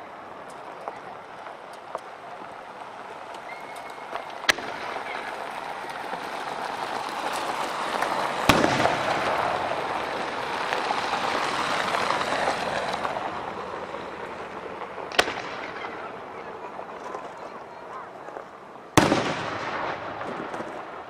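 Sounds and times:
steady rush of noise: 0.0 - 21.0
firework bang: 4.4 - 5.2, 8.4 - 9.7, 15.1 - 16.1, 19.0 - 21.0.

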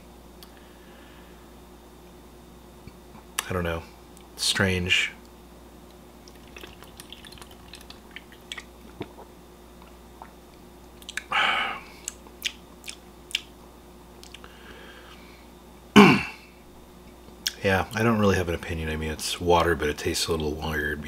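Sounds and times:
lip smacks: 6.2 - 10.4, 11.0 - 11.3, 12.0 - 13.5, 14.2 - 14.5
wet mouth clicks: 6.3 - 9.3, 11.0 - 11.3, 12.0 - 13.5, 14.2 - 14.5.

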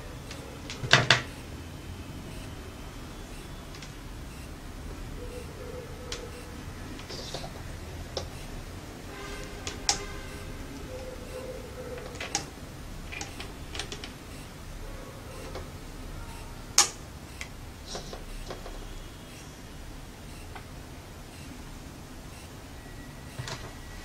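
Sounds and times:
clips clicking on a desk: 12.0 - 12.5.

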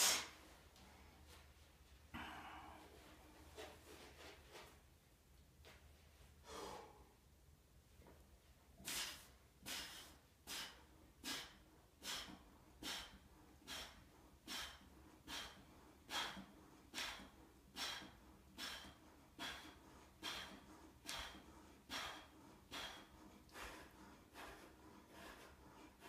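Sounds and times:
man breathing out hard: 8.9 - 25.6.

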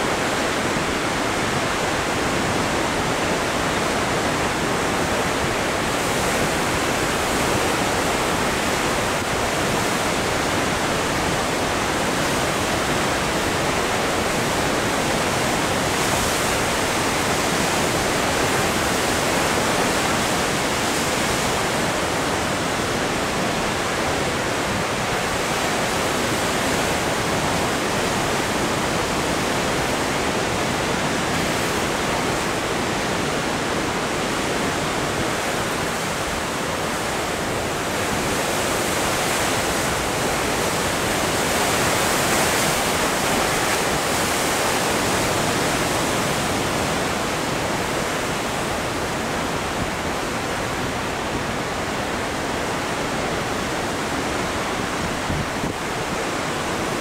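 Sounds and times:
ocean surf breaking on rocks: 0.0 - 57.0.

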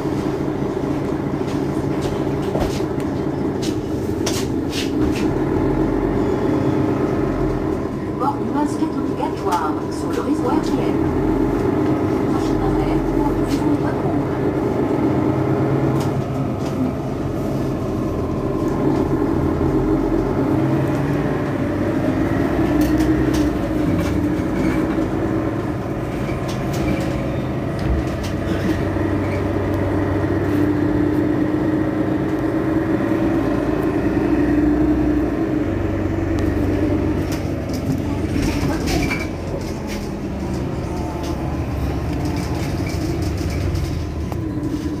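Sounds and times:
bus engine idling: 0.0 - 45.0.

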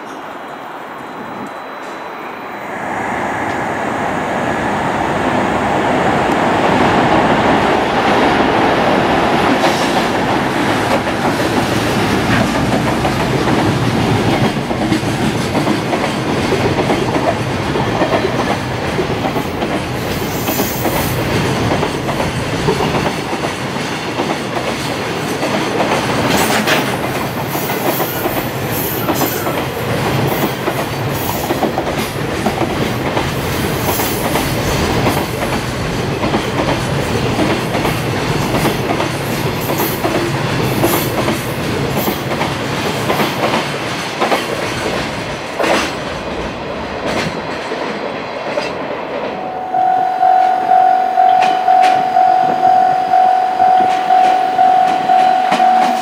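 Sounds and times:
freight train wheels clattering: 6.6 - 49.3.

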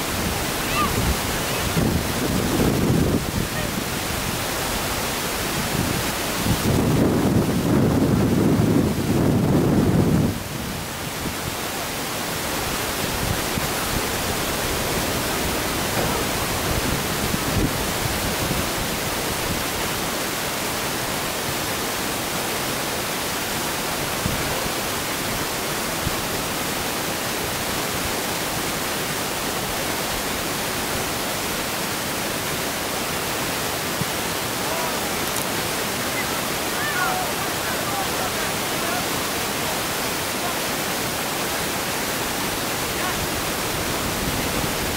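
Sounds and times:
wind buffeting the microphone: 0.0 - 11.7, 12.5 - 19.9, 42.8 - 44.9.

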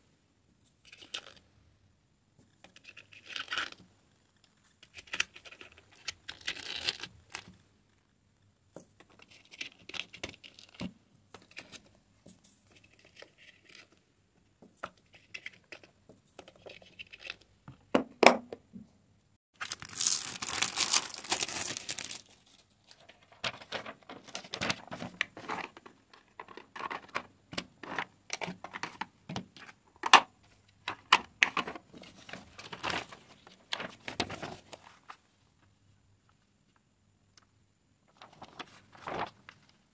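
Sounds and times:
packaging crinkling and tearing: 19.6 - 25.2
plastic and paper rustling: 19.6 - 27.3, 31.5 - 35.2, 38.1 - 39.8.

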